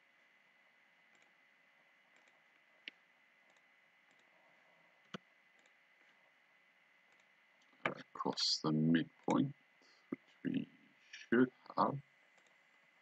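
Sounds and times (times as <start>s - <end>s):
computer mouse clicks: 1.1s - 1.4s, 2.1s - 4.3s, 5.0s - 5.8s, 7.1s - 8.0s, 12.3s - 12.7s.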